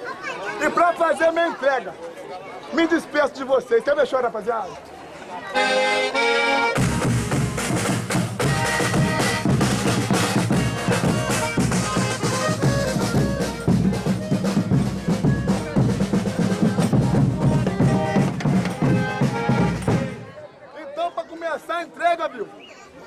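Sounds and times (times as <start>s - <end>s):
accordion: 5.4s - 20.4s
bass drum beaten with a stick: 6.8s - 20.2s.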